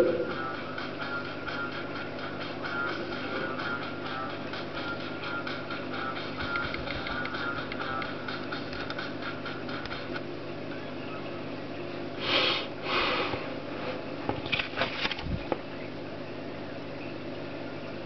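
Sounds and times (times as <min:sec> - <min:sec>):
steady low hum: 0:00.0 - 0:18.0
breathy sniffing rushes: 0:12.2 - 0:13.6.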